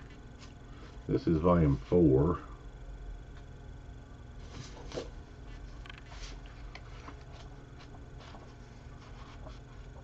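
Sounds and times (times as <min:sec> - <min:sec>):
low room hum: 0:00.0 - 0:10.0
pages rustling: 0:04.4 - 0:10.0.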